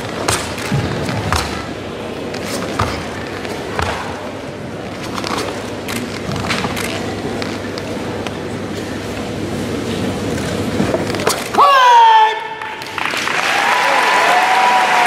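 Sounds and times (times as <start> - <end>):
feet striking mat: 0.0 - 4.3.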